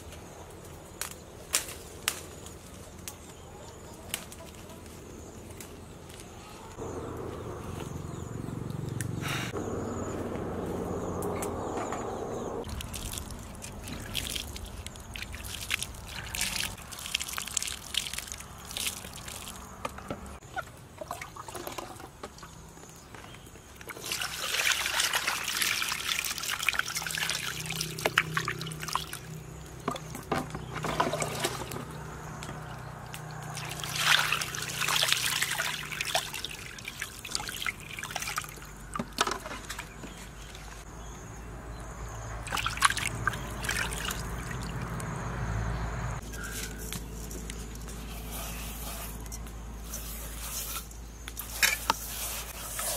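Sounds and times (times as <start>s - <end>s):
water splashing in a steel basin: 12.6s - 19.8s, 20.5s - 22.6s, 23.9s - 40.0s, 42.3s - 45.1s.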